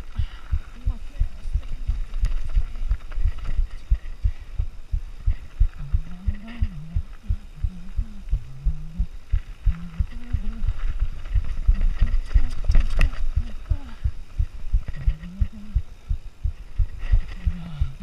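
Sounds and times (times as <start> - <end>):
low wavering tone: 4.9 - 18.0.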